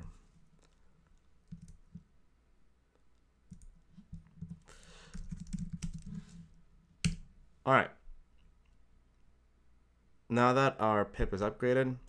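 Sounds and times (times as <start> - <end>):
keyboard typing: 1.4 - 2.0, 3.5 - 6.3.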